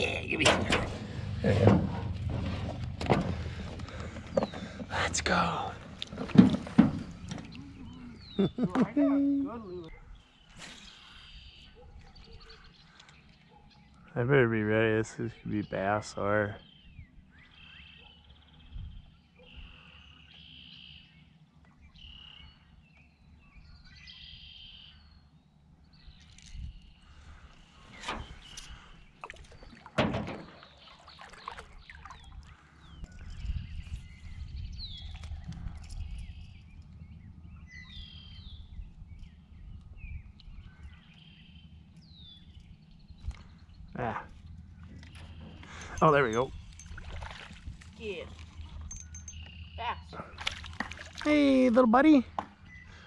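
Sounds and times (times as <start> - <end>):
steady low rumble: 0.0 - 8.7, 32.6 - 51.0
songbirds calling: 0.0 - 53.0.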